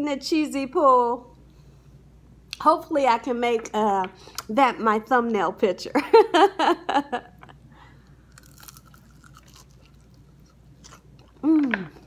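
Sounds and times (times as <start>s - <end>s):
person chewing crunchy food: 8.0s - 12.0s.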